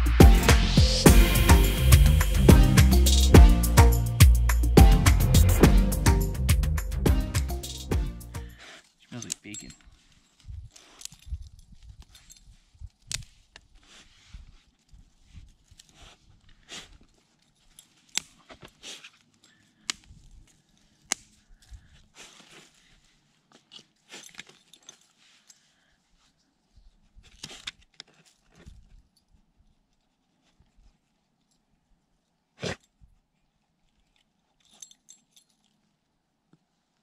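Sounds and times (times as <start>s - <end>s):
clicks and clinks of gear: 8.8s - 13.8s, 14.6s - 25.7s, 27.1s - 31.7s, 32.8s - 36.2s.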